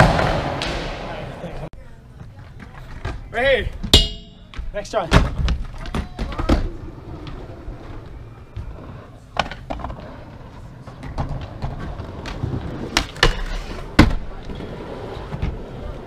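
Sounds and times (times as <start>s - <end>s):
skateboard wheels rolling on concrete: 0.0s - 3.9s, 4.5s - 16.0s
skateboard striking metal handrail: 3.8s - 4.7s.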